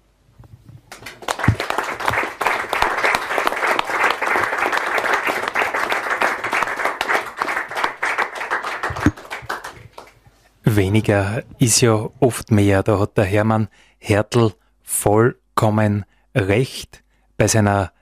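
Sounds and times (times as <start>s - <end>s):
audience applauding: 0.9s - 10.2s.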